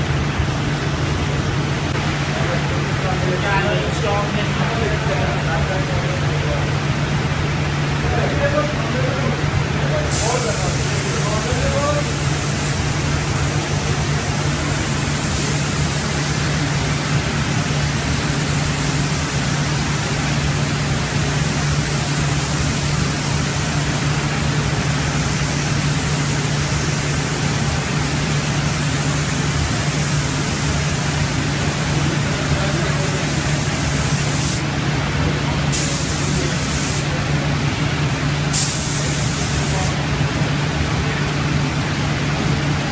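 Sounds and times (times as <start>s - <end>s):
steady low hum: 0.0s - 42.9s
paint spray gun hissing: 10.1s - 34.7s, 35.7s - 37.1s, 38.5s - 40.0s.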